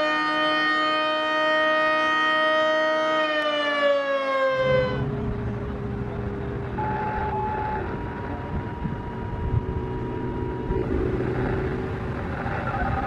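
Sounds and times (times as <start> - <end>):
warning siren winding down: 0.0 - 13.0
low outdoor rumble: 4.7 - 13.0.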